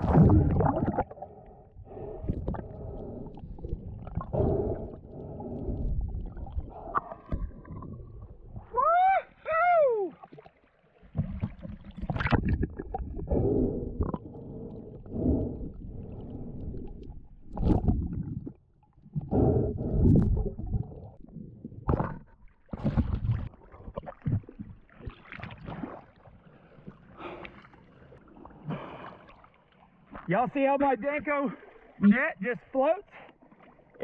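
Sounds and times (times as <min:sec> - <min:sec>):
water sloshing and gurgling: 0:00.0 - 0:34.0.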